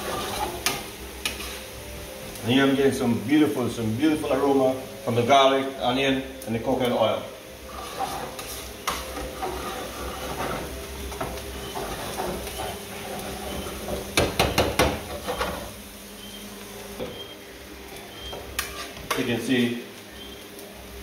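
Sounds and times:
metal spoon scraping frying pan: 0:00.0 - 0:01.6, 0:07.6 - 0:14.0, 0:18.5 - 0:19.2
onion and garlic sizzling: 0:00.0 - 0:21.0.

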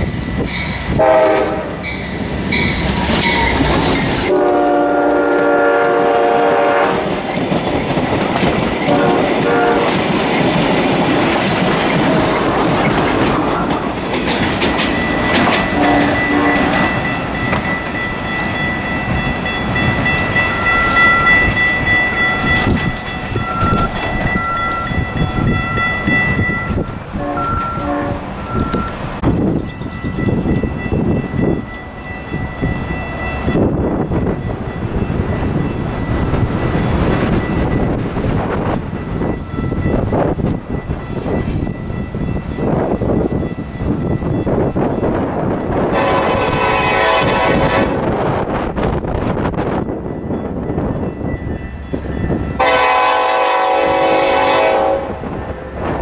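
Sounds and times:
train rumble and wheel clatter: 0:00.0 - 0:56.0
train horns blasting: 0:00.9 - 0:02.0, 0:04.3 - 0:07.2, 0:08.8 - 0:10.1, 0:15.1 - 0:17.9, 0:24.8 - 0:28.9, 0:45.7 - 0:48.4, 0:52.0 - 0:55.8
high ringing tone: 0:14.9 - 0:37.9.

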